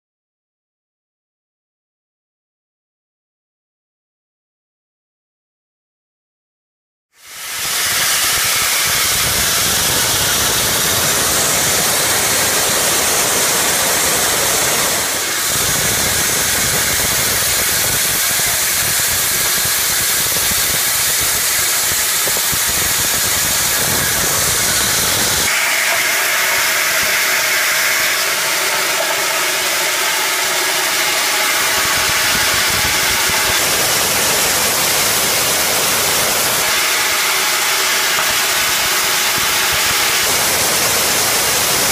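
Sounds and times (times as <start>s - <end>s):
oil mill machinery running: 7.2s - 41.9s.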